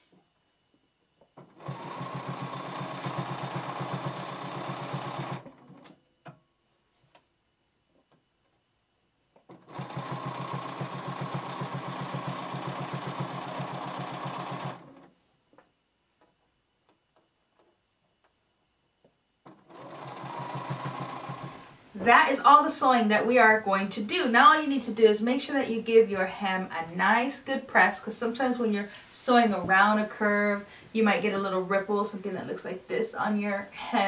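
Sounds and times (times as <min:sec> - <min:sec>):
sewing machine stitching: 0:01.4 - 0:06.0, 0:09.5 - 0:15.1, 0:19.5 - 0:21.7.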